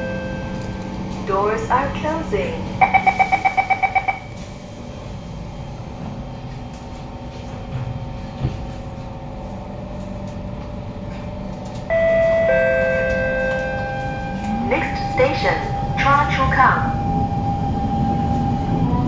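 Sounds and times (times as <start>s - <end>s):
train wheels rumbling: 0.0s - 19.0s
door-closing warning beeps: 2.8s - 4.5s, 11.9s - 16.6s.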